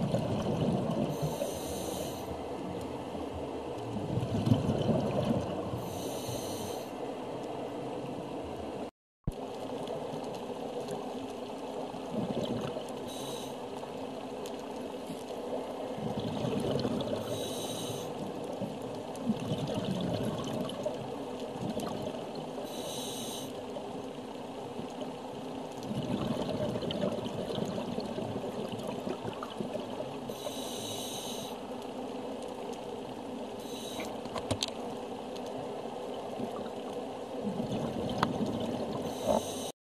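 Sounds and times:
hiss of exhaled bubbles: 0.0s - 2.3s, 16.0s - 18.2s, 19.3s - 20.9s, 25.9s - 31.6s, 37.4s - 39.7s
underwater water noise: 0.0s - 39.8s.

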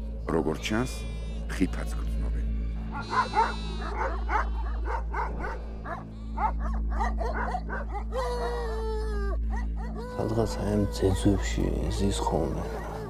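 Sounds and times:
long drawn-out call: 2.9s - 4.8s
dogs barking rapidly: 2.9s - 8.6s, 12.2s - 13.0s.

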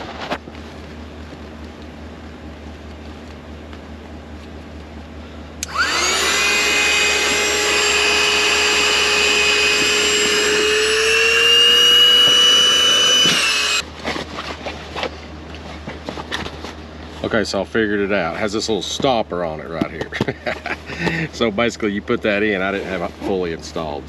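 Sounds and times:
electric air pump whining: 5.6s - 13.8s.

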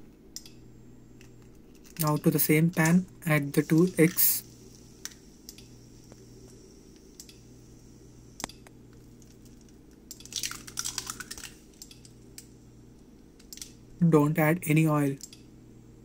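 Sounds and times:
faint steady hum: 0.0s - 16.0s
egg crackling in pan: 9.0s - 12.5s.

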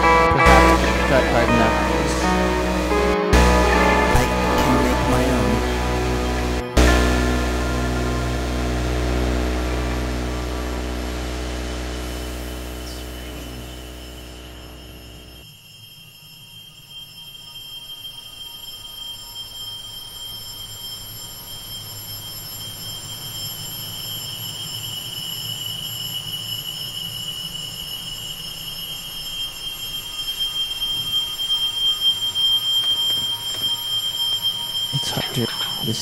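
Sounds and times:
low rumbling hum: 0.0s - 15.4s
high-pitched electronic tone: 0.0s - 15.6s, 28.1s - 36.0s.

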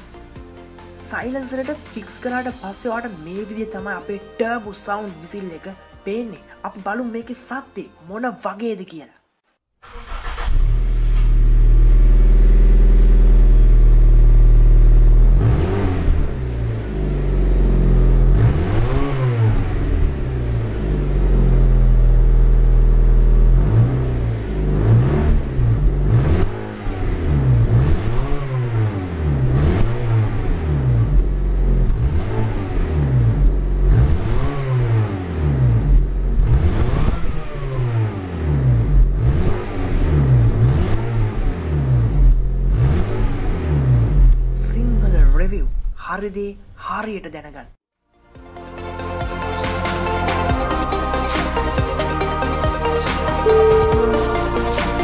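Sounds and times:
car engine revving: 9.8s - 44.6s
exhaust turbo whistle: 17.3s - 20.0s, 53.4s - 55.0s.

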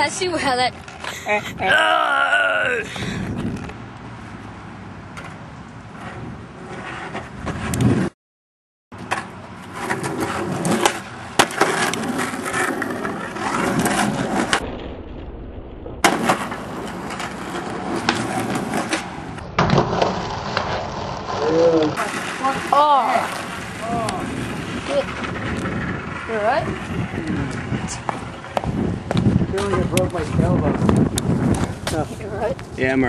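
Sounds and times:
skateboard wheels rolling on asphalt: 0.0s - 1.6s, 2.6s - 8.1s, 9.0s - 15.0s, 16.0s - 33.0s
skateboard clacking on ground: 9.0s - 14.6s, 16.0s - 30.4s.

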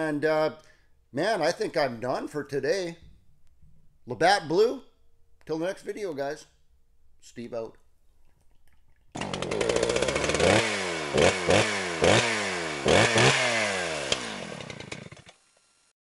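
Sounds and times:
small engine revving: 9.2s - 15.9s.

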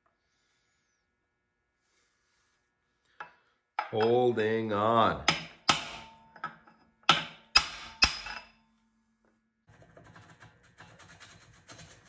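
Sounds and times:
hammer striking steel punch: 5.2s - 6.5s, 7.1s - 8.5s.

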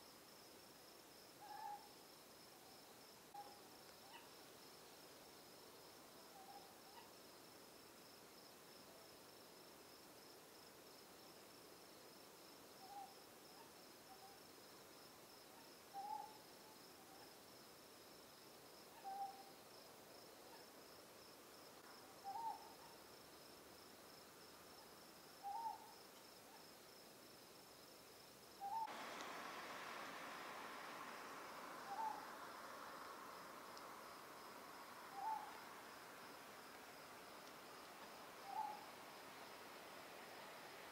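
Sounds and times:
background hiss: 0.0s - 40.9s
owl hooting: 1.4s - 1.9s, 3.4s - 4.3s, 6.3s - 7.1s, 15.6s - 16.4s, 19.0s - 19.5s, 22.2s - 23.0s, 25.4s - 25.9s, 28.6s - 29.0s, 29.9s - 35.9s, 38.4s - 39.0s.

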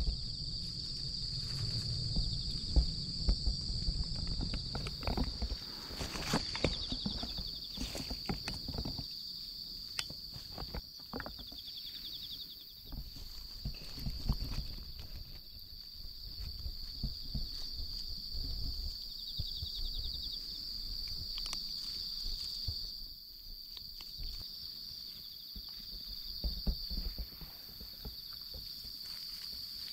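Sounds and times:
low thumps: 0.0s - 7.6s
insects chirring: 0.0s - 29.9s
pulsed insect trills: 0.0s - 29.9s.

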